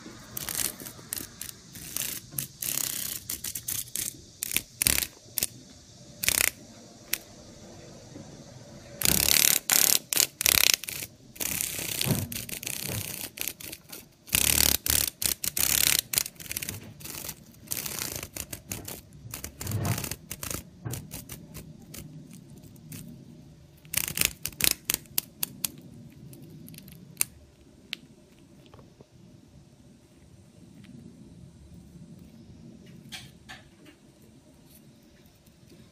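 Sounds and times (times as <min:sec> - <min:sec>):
cicada buzzing in rattly bursts: 0:00.0 - 0:25.7.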